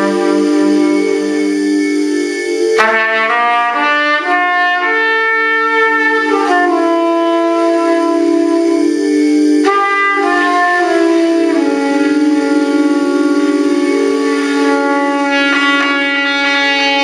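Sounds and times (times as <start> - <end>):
trumpet playing long notes: 0.0 - 17.0.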